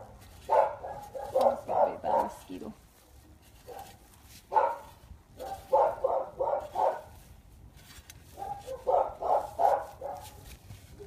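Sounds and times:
dog barking: 0.0s - 2.5s, 3.7s - 7.1s, 8.4s - 10.4s.

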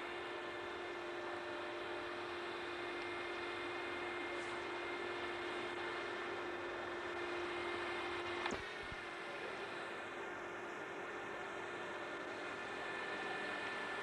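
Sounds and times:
machine hum with hiss: 0.0s - 14.0s
click: 8.3s - 8.6s.

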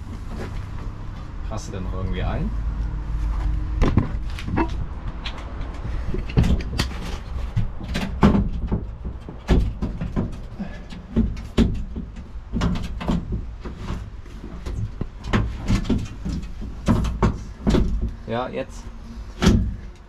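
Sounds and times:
knocks and clunks of parts handled: 3.3s - 18.3s.

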